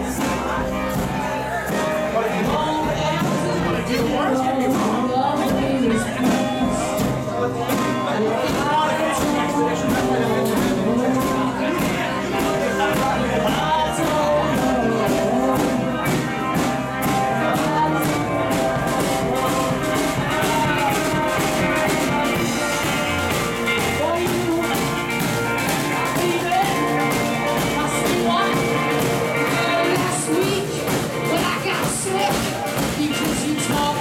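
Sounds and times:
drum kit beat: 0.0 - 34.0
electric guitars: 0.0 - 34.0
lead vocal singing: 0.0 - 34.0.

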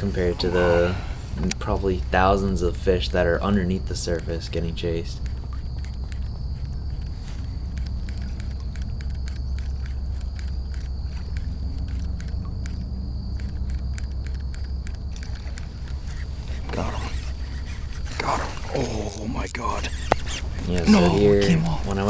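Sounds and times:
light rapid ticks: 1.4 - 18.3.

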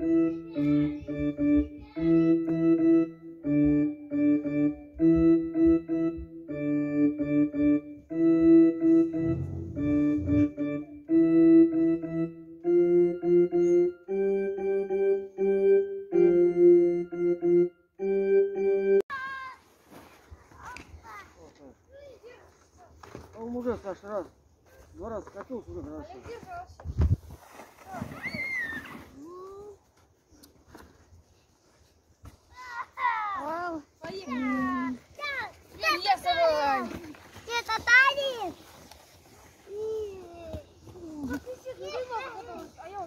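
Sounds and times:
digital piano simple tune: 0.0 - 19.0.

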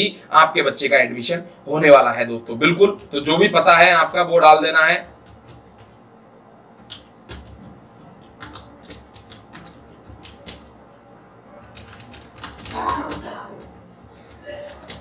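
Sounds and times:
keyboard typing: 2.8 - 6.0, 6.8 - 10.8, 11.6 - 15.0.

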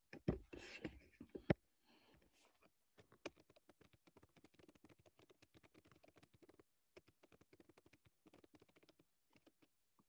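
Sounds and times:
typing on laptop keyboard: 3.0 - 9.8.

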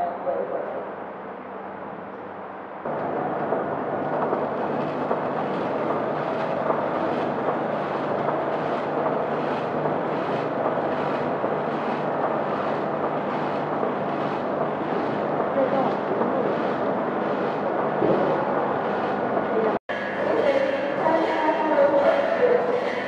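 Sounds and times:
machine hum: 0.0 - 23.0.

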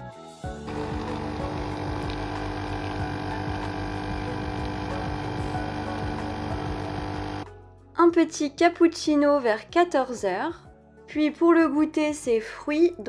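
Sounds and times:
coffee machine pump humming: 0.6 - 7.4
coffee streaming into mug: 0.7 - 7.4.

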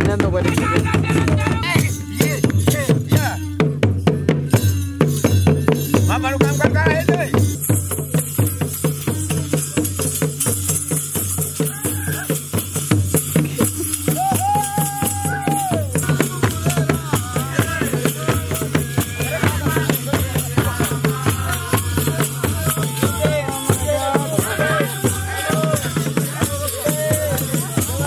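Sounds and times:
drumming in a repeating rhythm: 0.0 - 28.0
rattling percussion: 0.0 - 28.0
group singing: 13.6 - 28.0.

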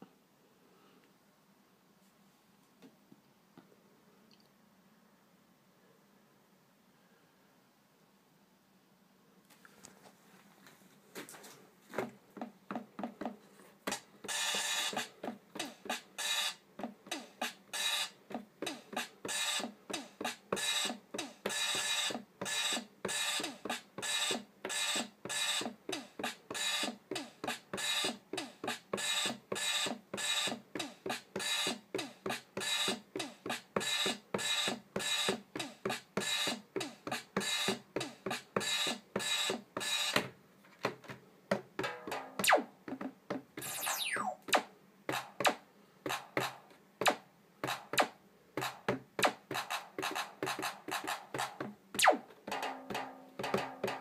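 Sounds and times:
electronic drum hits: 41.8 - 42.7, 52.0 - 54.0.

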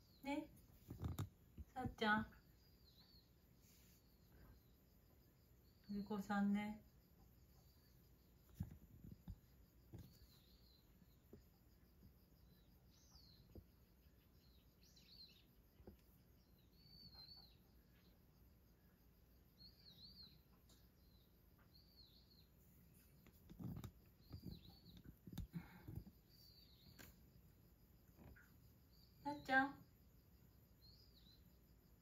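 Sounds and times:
high slurred bird chirps: 16.3 - 18.1.

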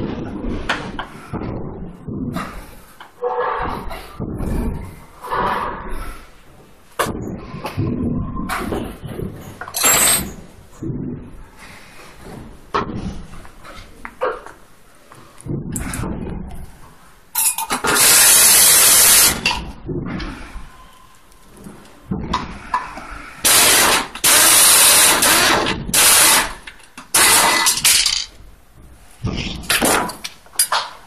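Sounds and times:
pneumatic screwdriver air hiss: 17.9 - 19.4, 23.4 - 26.6.

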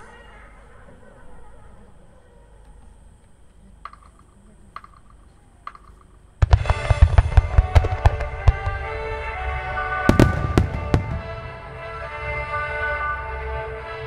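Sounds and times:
firework launches and bangs: 10.1 - 11.6.

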